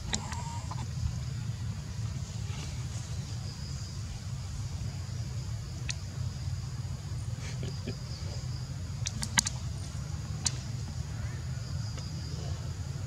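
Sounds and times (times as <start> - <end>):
high insect drone: 0.0 - 13.0
sharp clicks: 9.0 - 9.6.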